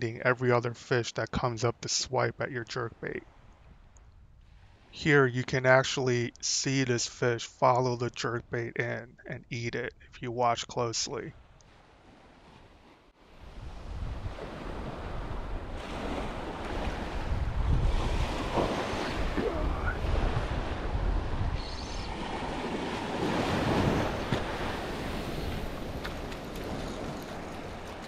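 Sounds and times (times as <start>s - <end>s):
ocean surf breaking: 11.8s - 28.0s
wind buffeting microphone: 13.4s - 28.0s.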